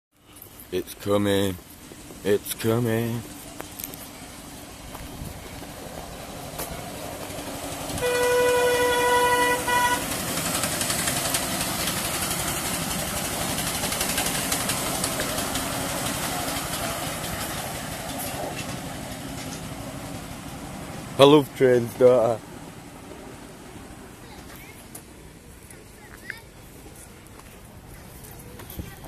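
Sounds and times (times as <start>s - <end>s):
wheels clicking on track: 0.2s - 29.0s
train running past: 0.3s - 29.0s
miniature train horn: 7.9s - 10.4s.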